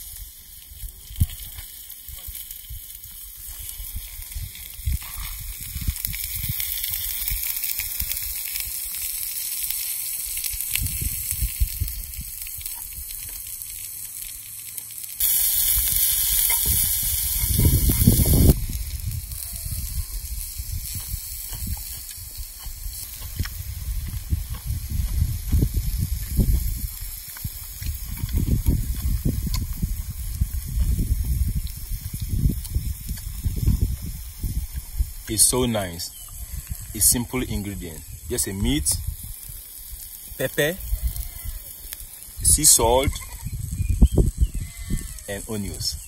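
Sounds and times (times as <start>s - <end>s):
meat sizzling on hot rock: 0.0s - 46.0s.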